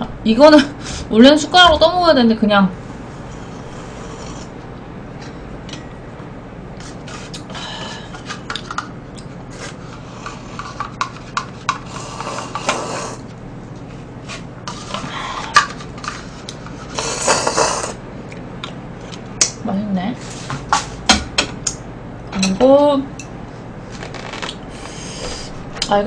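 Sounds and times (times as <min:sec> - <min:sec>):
person slurping soup: 0:03.4 - 0:04.5, 0:11.9 - 0:13.2, 0:16.9 - 0:18.0.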